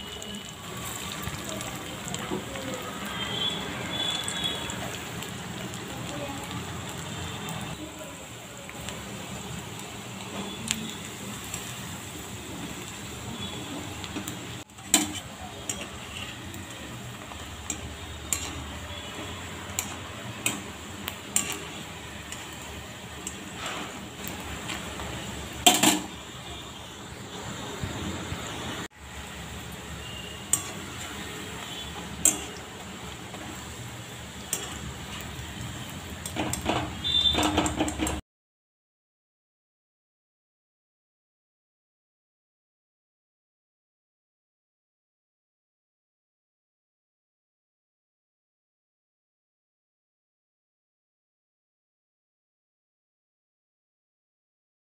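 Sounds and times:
food sizzling in hot oil: 0:00.0 - 0:38.2
wire skimmer scraping pan: 0:36.2 - 0:38.2.

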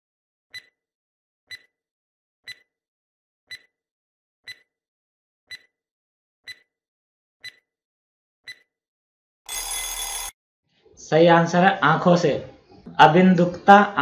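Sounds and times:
countdown timer ticks: 0:02.5 - 0:02.7, 0:04.5 - 0:04.7.

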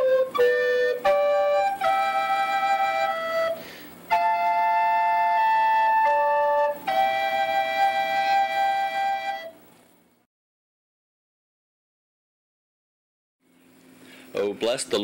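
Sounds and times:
flutes playing held notes: 0:00.0 - 0:09.7.

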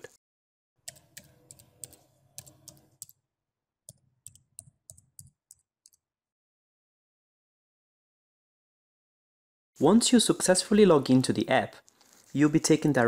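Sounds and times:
computer keyboard typing: 0:00.9 - 0:03.2, 0:03.9 - 0:06.0.

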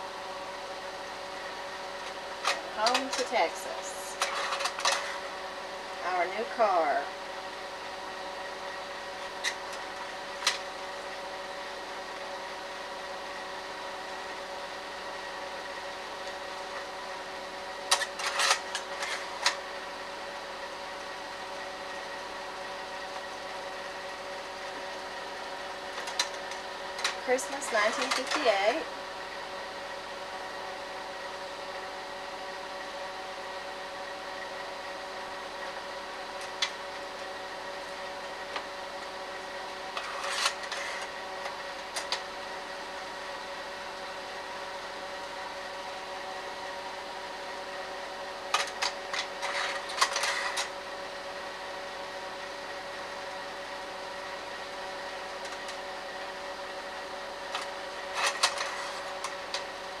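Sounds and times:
projector fan hum: 0:00.0 - 1:00.0.

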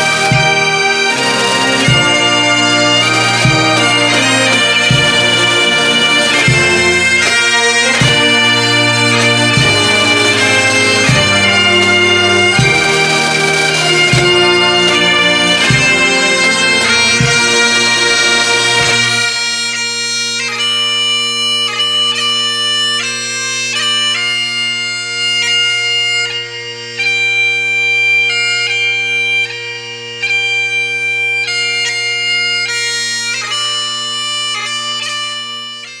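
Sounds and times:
bagpipe melody over drones: 0:00.0 - 0:36.0.

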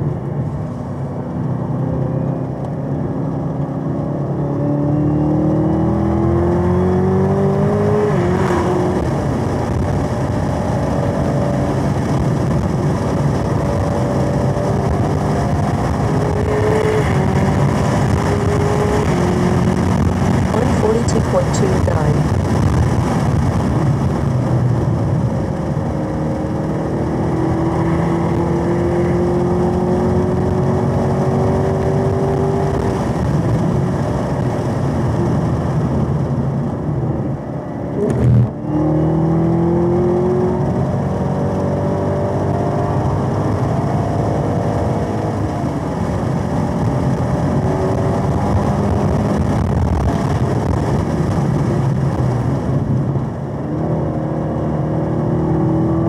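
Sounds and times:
car engine accelerating: 0:00.0 - 0:56.0.

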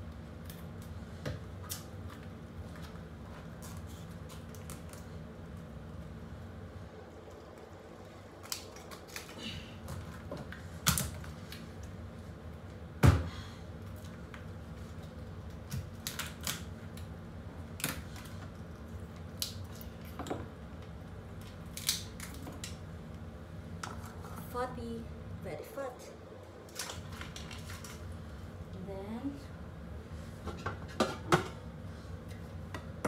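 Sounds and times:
knife cracking lobster shell: 0:21.8 - 0:22.7.

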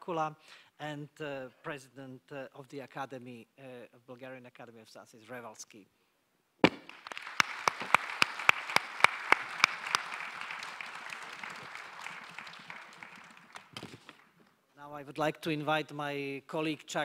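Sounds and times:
loud nearby hand clapping: 0:06.6 - 0:14.5
audience applause: 0:06.8 - 0:14.4.

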